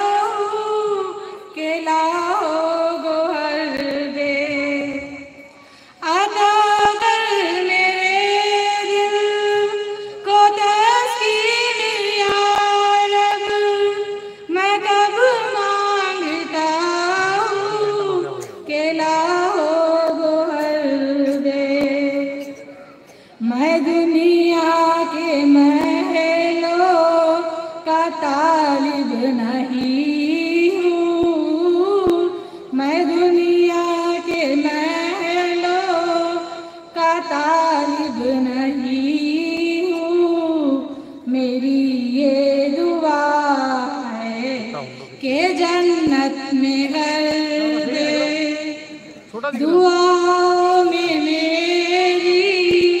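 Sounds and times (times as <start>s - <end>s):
person singing into microphone: 0.0s - 53.0s.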